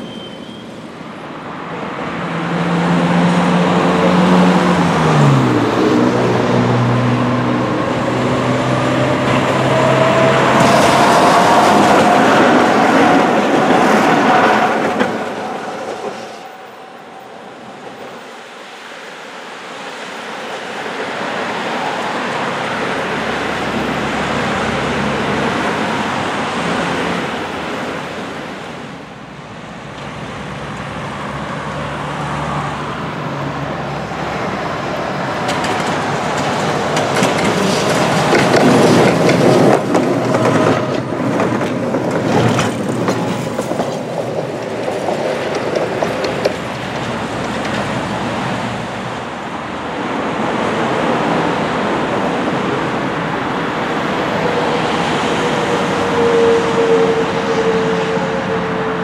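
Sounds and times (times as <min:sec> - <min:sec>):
tram rumbling past: 0:00.0 - 0:59.0
wheels clattering knocks: 0:35.2 - 0:48.6.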